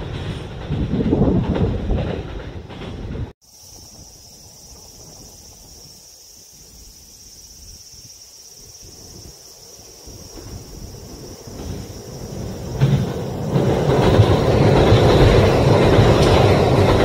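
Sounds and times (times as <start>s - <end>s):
low rumble of wind: 0.0s - 17.0s
passing train: 0.0s - 17.0s
high insect trill: 3.4s - 17.0s.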